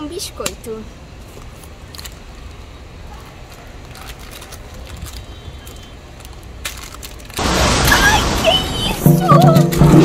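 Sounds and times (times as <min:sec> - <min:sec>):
plastic packet crinkling: 0:03.5 - 0:07.4.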